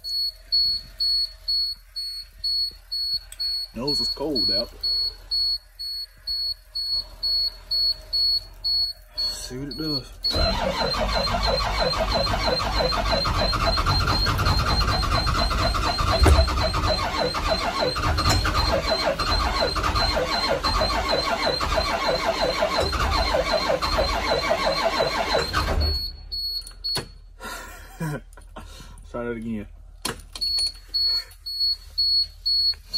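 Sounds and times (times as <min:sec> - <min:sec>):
high-pitched warning buzzer: 0:00.2 - 0:26.1
starter cranking diesel engine: 0:10.2 - 0:26.0.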